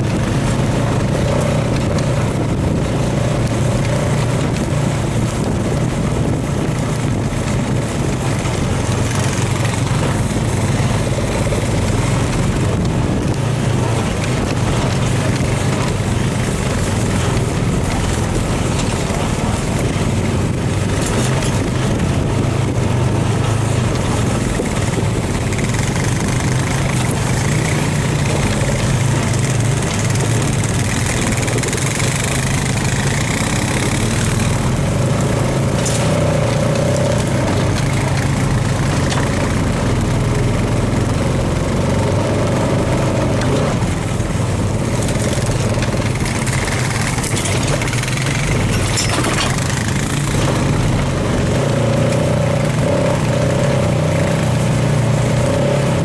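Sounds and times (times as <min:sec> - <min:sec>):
atv engine running: 0:00.0 - 0:56.0.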